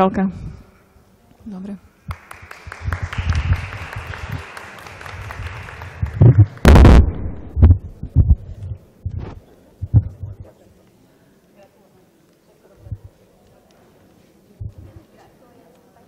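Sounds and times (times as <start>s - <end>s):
audience applauding: 2.1s - 6.9s
heavy low thumps: 6.0s - 10.4s, 14.6s - 15.0s.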